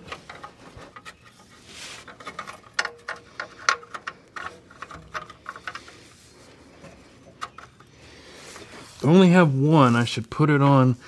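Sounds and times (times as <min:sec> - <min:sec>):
person breathing: 0:07.9 - 0:09.0.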